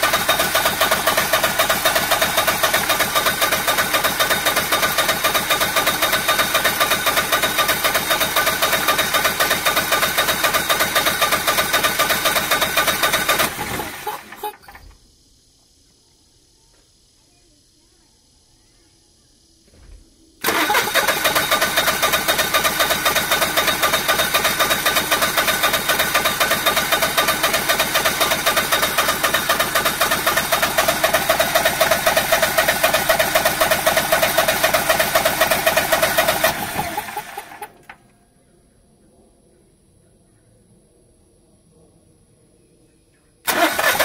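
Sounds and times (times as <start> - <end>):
engine starter cranking: 0.0 - 15.0, 20.4 - 38.0, 43.5 - 44.0.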